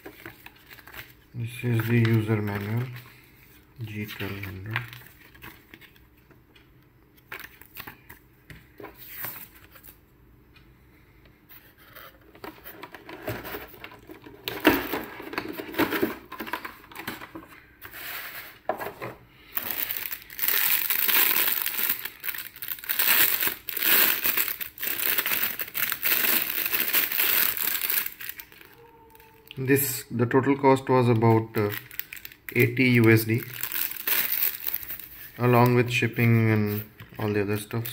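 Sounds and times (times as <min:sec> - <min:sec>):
plastic bag crinkling: 0:19.4 - 0:29.6, 0:31.0 - 0:37.9.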